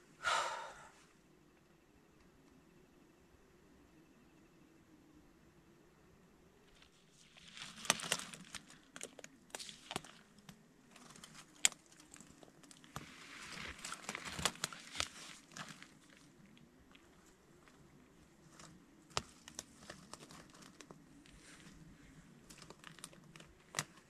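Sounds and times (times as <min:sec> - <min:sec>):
rustling of tent fabric: 0:06.7 - 0:10.3, 0:10.9 - 0:24.0.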